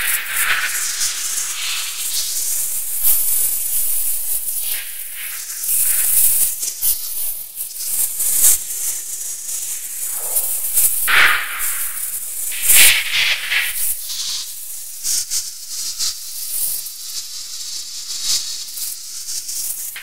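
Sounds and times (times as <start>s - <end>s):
high-pitched hissing noise texture: 0.0s - 15.5s, 19.8s - 20.0s
sharp crackles and clicks: 9.9s - 14.4s.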